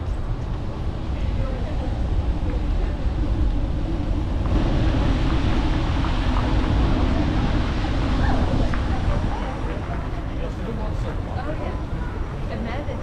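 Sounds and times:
low street rumble: 0.0s - 13.0s
wind buffeting microphone: 0.0s - 13.0s
loud hiss: 3.2s - 9.7s.

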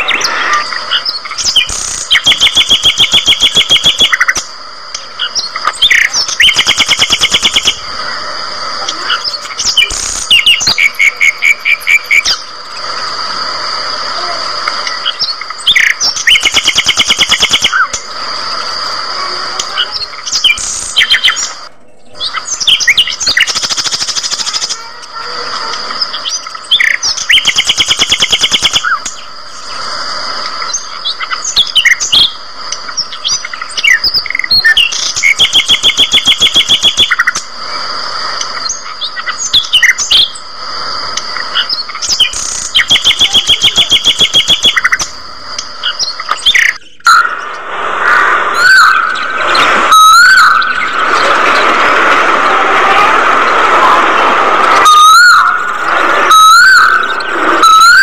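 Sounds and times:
budgerigars chirping and chattering: 19.6s - 24.7s, 30.8s - 37.4s, 54.8s - 58.0s.

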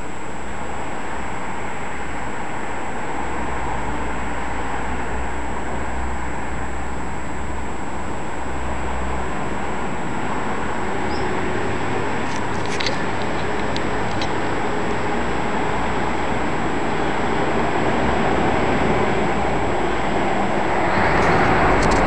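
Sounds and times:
sharp clicks: 12.2s - 14.4s.

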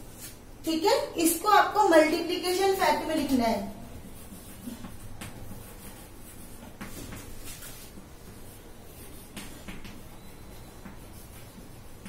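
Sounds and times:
chalk tapping and scraping on board: 3.9s - 12.0s.

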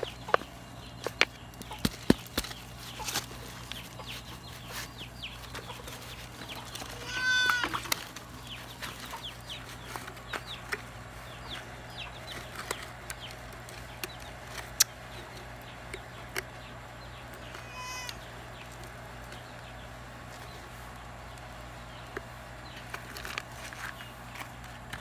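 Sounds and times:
chickens clucking: 0.0s - 25.0s
drawn-out chicken call: 6.5s - 8.1s, 17.4s - 18.6s.

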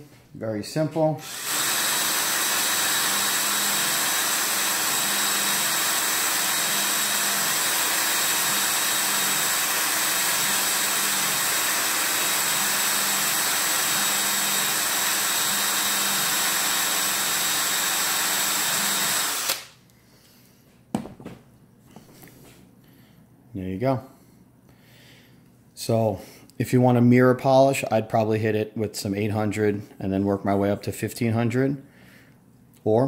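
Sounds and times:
drill with polishing wheel: 1.2s - 19.7s.

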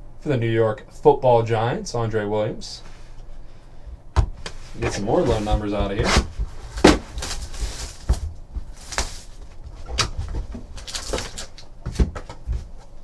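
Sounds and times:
cardboard and plastic rustling: 4.5s - 13.0s.

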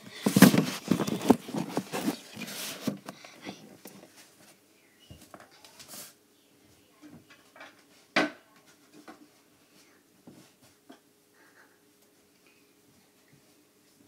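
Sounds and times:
handling knocks and bumps: 0.2s - 3.1s
chair being shifted: 0.2s - 3.2s.

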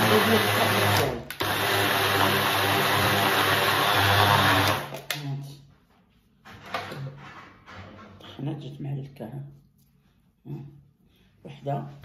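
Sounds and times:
food processor grinding nuts: 0.0s - 5.1s.

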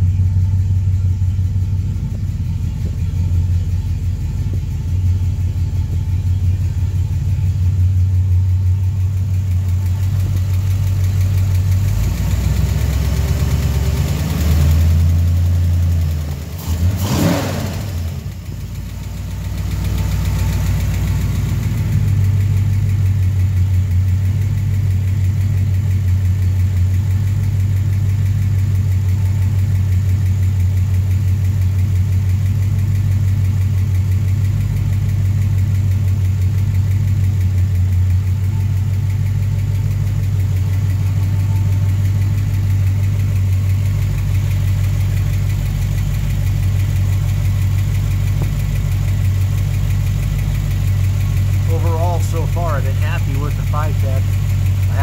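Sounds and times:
engine idling: 0.0s - 55.0s
engine ticking: 0.0s - 55.0s.

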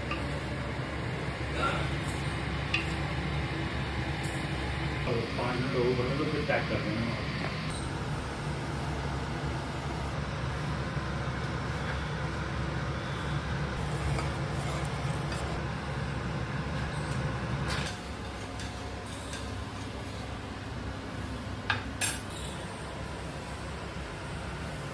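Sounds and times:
gas stove burner rumbling: 0.0s - 24.9s.

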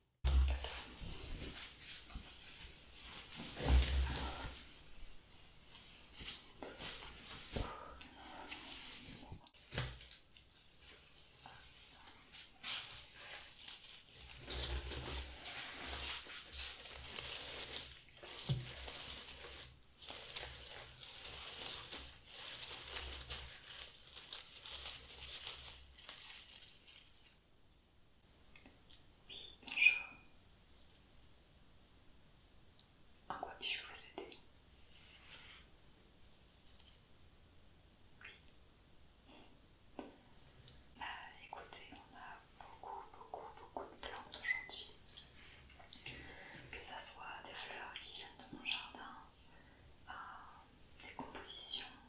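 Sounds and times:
dried grass rustling and crackling: 8.7s - 27.4s.

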